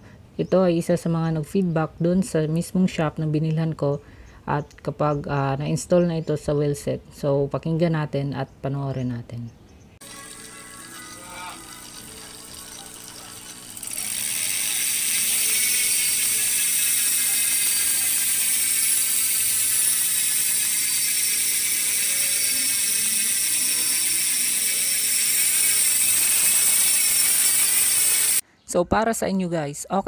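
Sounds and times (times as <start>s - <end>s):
bike hub ratcheting: 10.0s - 28.4s.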